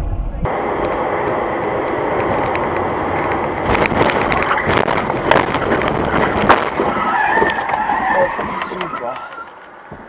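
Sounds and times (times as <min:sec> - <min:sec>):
vehicle noise: 0:00.0 - 0:10.0
sharp knocks and cracks of impact: 0:03.6 - 0:07.0.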